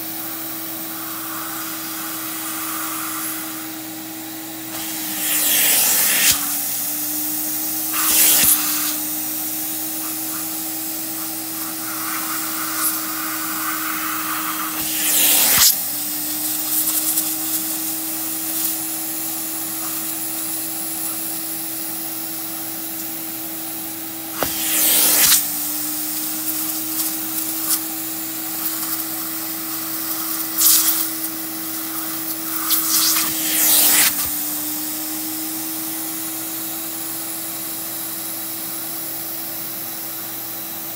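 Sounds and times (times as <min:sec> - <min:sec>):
hissing air rush: 0:00.0 - 0:15.8, 0:24.3 - 0:25.6, 0:28.5 - 0:34.3
vacuum motor running: 0:00.0 - 0:40.9.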